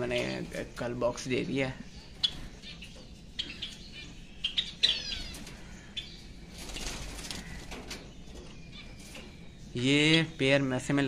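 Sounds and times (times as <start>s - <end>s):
sparrows chirping and clicking: 0.0s - 11.0s
wings fluttering: 4.8s - 9.5s.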